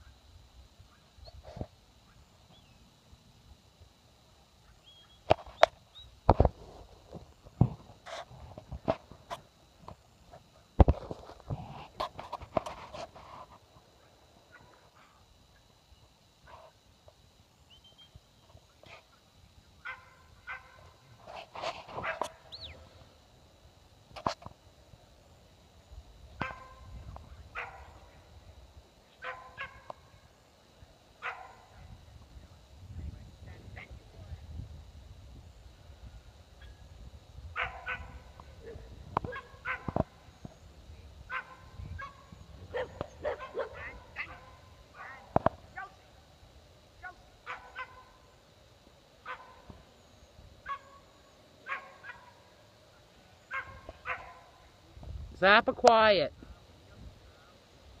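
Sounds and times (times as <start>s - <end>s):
dog barking: 19.8s - 20.8s, 22.0s - 22.4s, 26.4s - 26.8s, 27.6s - 27.9s, 29.2s - 29.9s, 31.2s - 31.6s, 37.6s - 38.1s, 38.7s - 40.0s, 41.3s - 45.2s, 47.4s - 48.0s, 49.2s - 49.6s, 50.6s - 51.0s, 51.6s - 52.3s, 53.5s - 54.5s.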